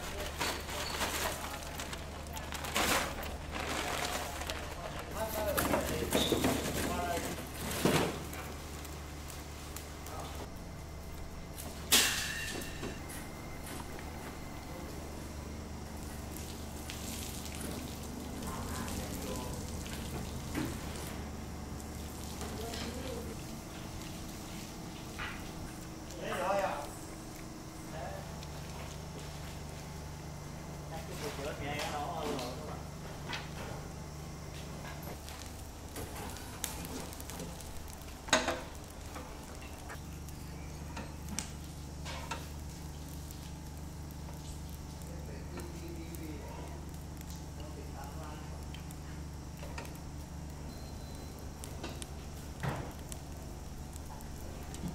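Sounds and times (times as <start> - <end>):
open fire crackling: 0.0 - 54.9
steady low hum: 0.0 - 54.9
water poured and splashing: 16.3 - 21.0.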